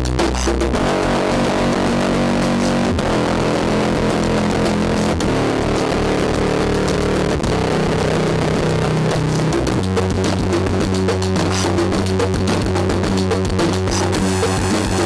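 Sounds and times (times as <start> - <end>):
distorted keyboard drone: 0.0 - 15.0.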